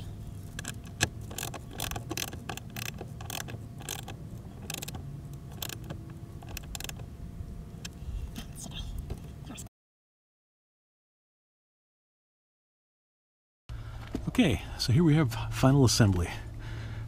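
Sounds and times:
wire hardware clicks and rattles: 0.4s - 7.1s.

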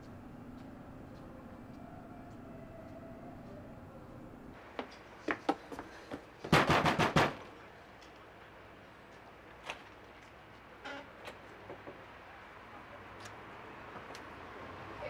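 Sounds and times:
low steady hum: 0.0s - 4.6s.

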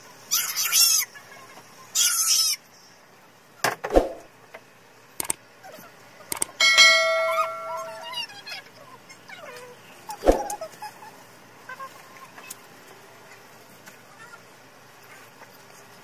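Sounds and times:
mouse clicks: 5.2s - 5.4s, 6.3s - 6.5s
high-pitched chirping bursts: 6.3s - 8.4s
bright ringing chime: 6.6s - 8.1s.

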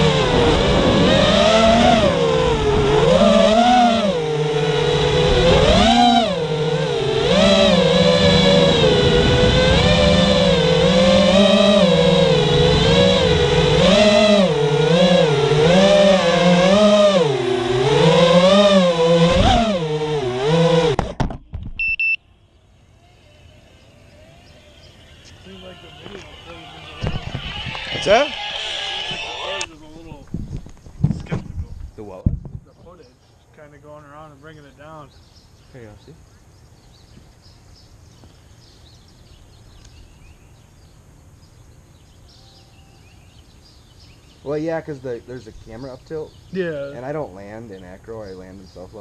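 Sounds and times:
drone motors whining: 0.0s - 22.2s, 22.9s - 30.8s
short high beep: 21.8s - 22.2s
small birds chirping: 22.8s - 27.0s, 32.6s - 49.0s.

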